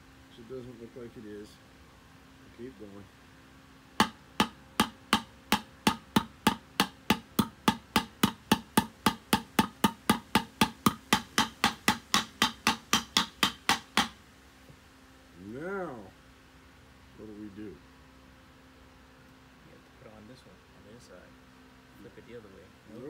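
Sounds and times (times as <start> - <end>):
hammer striking steel drift: 4.0 - 14.2.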